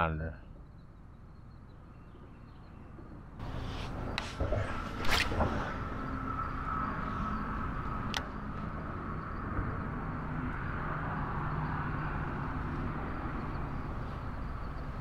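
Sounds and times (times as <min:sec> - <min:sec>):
rushing noise: 0:03.4 - 0:15.0.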